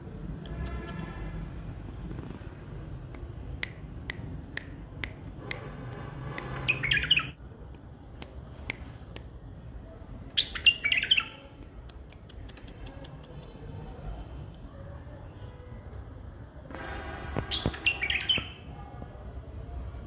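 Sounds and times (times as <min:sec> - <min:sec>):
bird singing warbled phrases: 0:06.6 - 0:07.4, 0:10.2 - 0:13.3, 0:17.5 - 0:18.7
sharp single ticks: 0:11.6 - 0:13.6.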